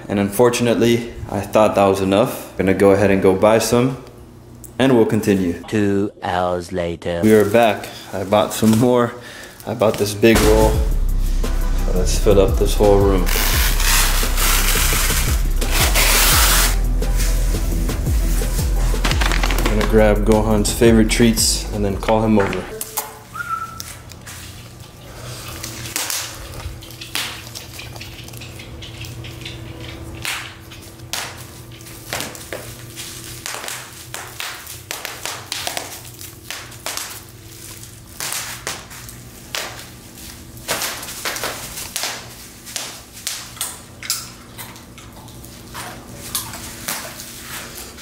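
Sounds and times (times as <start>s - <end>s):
footsteps on bubble wrap: 7.2s - 10.8s, 12.8s - 44.0s, 44.8s - 48.0s.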